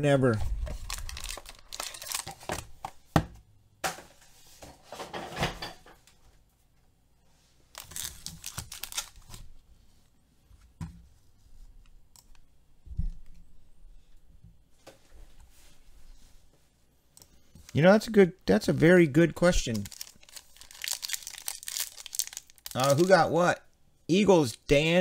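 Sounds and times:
paper and foil tearing and crinkling: 0:00.7 - 0:02.4, 0:07.8 - 0:09.3, 0:19.6 - 0:23.2.

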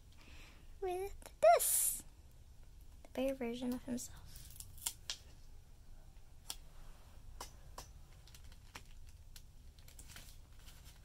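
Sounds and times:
paper sticker peeling and crinkling: 0:08.1 - 0:11.0.

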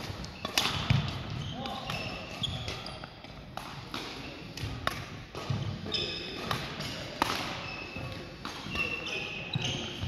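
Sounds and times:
rackets striking shuttlecocks: 0:00.0 - 0:10.0
shoes squeaking on wooden floor: 0:07.6 - 0:10.0.

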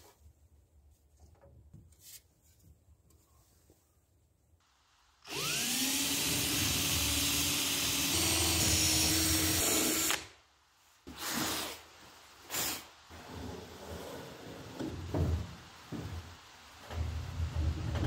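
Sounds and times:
cordless drill boring wood: 0:05.3 - 0:10.3
short puffs of air: 0:11.2 - 0:13.0.

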